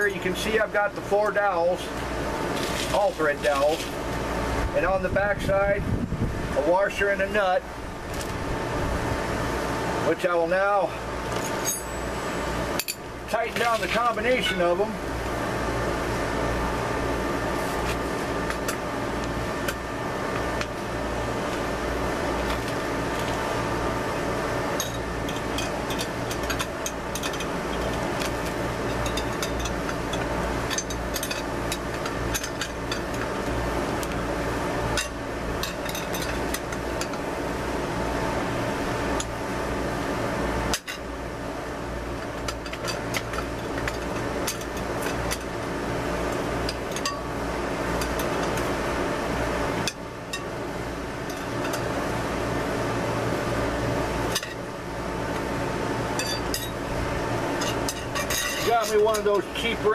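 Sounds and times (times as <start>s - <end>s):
steady mechanical hum: 0.0s - 59.9s.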